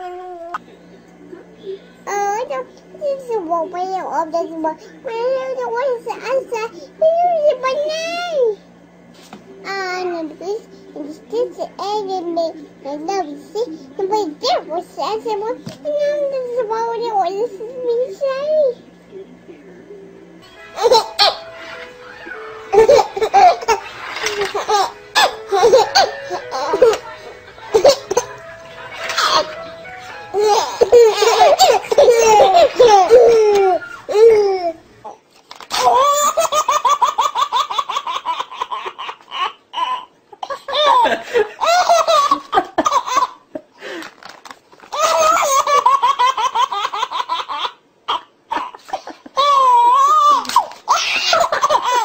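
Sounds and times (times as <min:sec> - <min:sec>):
babies giggling: 0:20.6 - 0:43.4, 0:44.9 - 0:52.0
baby laughing: 0:20.7 - 0:43.4, 0:44.9 - 0:52.0.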